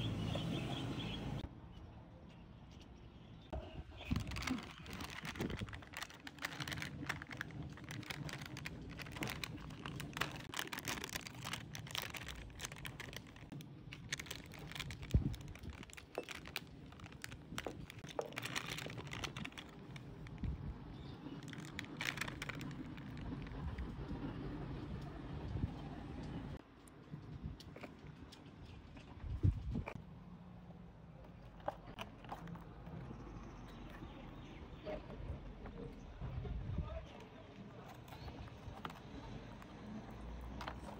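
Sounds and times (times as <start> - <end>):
plastic snack bag crinkling: 3.9 - 24.2.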